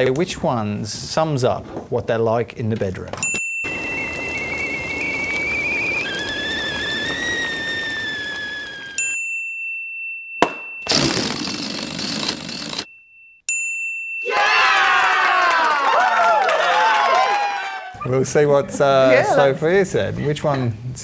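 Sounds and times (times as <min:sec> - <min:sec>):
wavering whistle: 0:03.6 - 0:09.2
steady hiss: 0:03.7 - 0:09.0
sharp crack: 0:10.4 - 0:12.9.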